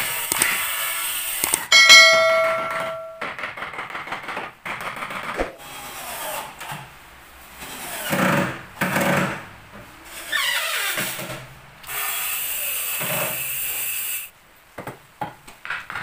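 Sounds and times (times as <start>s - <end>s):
ringing metallic tone: 1.7s - 3.3s.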